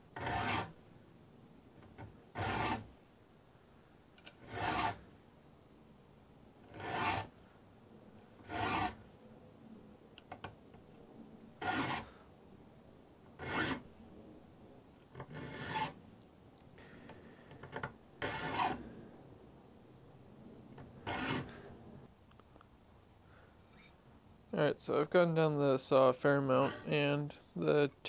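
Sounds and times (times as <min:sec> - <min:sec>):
file rasping on saw teeth: 0:00.2 - 0:00.7, 0:02.4 - 0:02.9, 0:04.4 - 0:05.0, 0:06.7 - 0:07.3, 0:08.4 - 0:09.0, 0:11.6 - 0:12.1, 0:13.4 - 0:13.8, 0:15.3 - 0:16.0, 0:18.2 - 0:18.8, 0:21.0 - 0:21.5.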